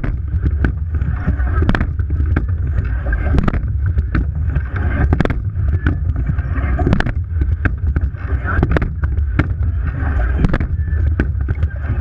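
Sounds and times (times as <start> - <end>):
sharp knocks from rowing boat: 0.0 - 2.5, 3.4 - 9.6
water rushing along hull: 0.0 - 12.0
wind buffeting microphone: 0.0 - 12.0.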